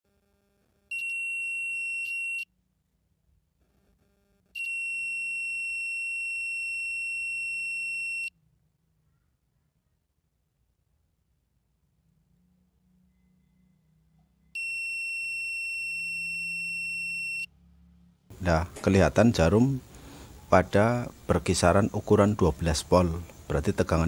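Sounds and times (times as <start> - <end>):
multimeter continuity buzzer beeping: 0.9 - 2.5, 4.6 - 8.3, 14.6 - 17.5, 18.3 - 24.0.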